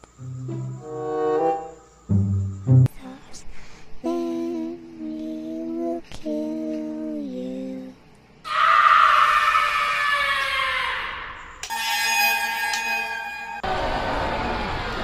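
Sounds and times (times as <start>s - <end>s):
harsh falling shriek: 8.4s - 14.9s.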